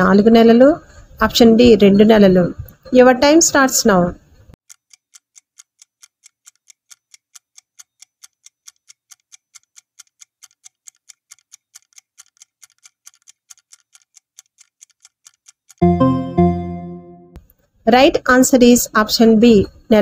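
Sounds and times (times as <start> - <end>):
faint clock ticking: 4.6 - 15.8.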